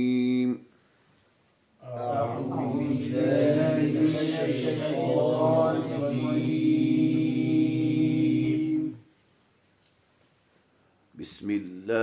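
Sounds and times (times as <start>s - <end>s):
man chanting recitation: 0.0s - 0.7s, 1.8s - 9.0s, 11.2s - 12.0s.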